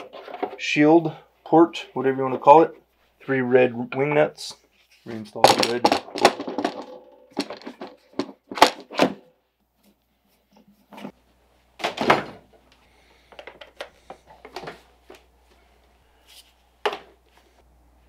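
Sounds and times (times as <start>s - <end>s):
handling knocks and thumps: 5.4s - 9.2s.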